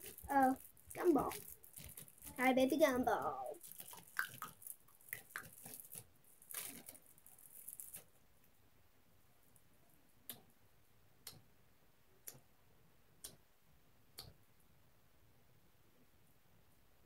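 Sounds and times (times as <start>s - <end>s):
faint rustling handling noise: 0.0s - 8.6s.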